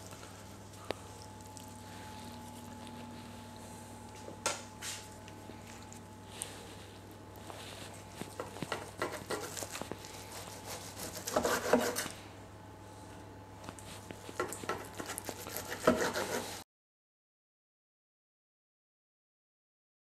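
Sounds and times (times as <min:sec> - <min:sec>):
knife sawing through crusted meat: 0:08.7 - 0:12.1, 0:14.7 - 0:16.6.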